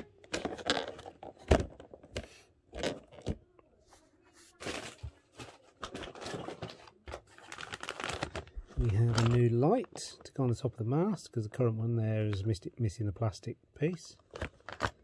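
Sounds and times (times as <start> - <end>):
plastic packaging crinkling: 4.6 - 10.1.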